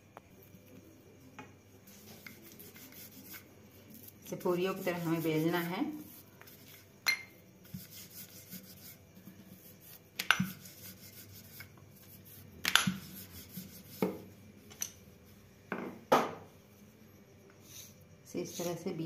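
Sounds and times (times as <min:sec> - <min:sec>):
rolling pin rubbing dough: 0:01.8 - 0:14.4
sharp knocks of rolling pin: 0:10.2 - 0:10.6, 0:12.6 - 0:13.1.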